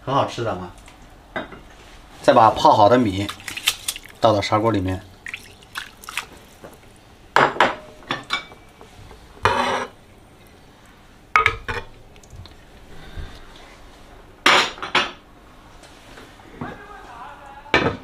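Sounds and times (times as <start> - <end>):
ladle and dishes clinking on pot: 7.4 - 10.0.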